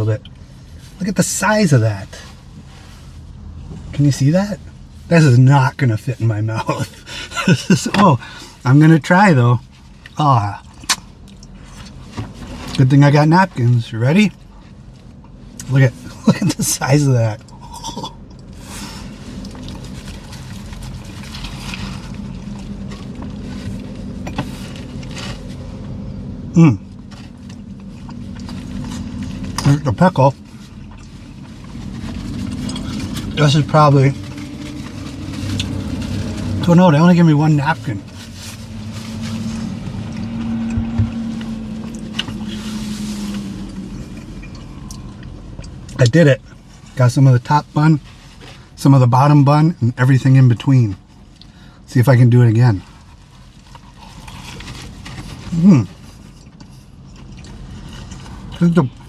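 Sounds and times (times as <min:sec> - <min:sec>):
car engine idling: 0:00.0 - 0:49.0
man chewing: 0:17.4 - 0:26.0, 0:26.9 - 0:29.6, 0:30.6 - 0:33.4, 0:39.0 - 0:46.0, 0:53.5 - 0:58.6
paper bag rustling: 0:30.4 - 0:45.2
chewing: 0:53.6 - 0:58.6.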